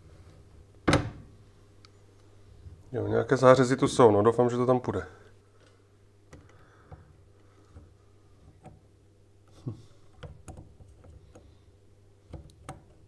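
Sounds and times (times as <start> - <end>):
steady low hum: 0.0 - 13.0
faint clicks and knocks of handling: 5.2 - 13.0.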